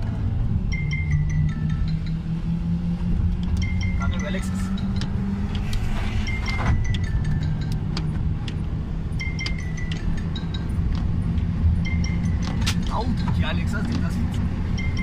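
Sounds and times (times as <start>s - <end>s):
car engine drone: 0.0s - 15.0s
high chiming tones: 0.6s - 3.0s, 3.6s - 12.4s, 14.7s - 15.0s.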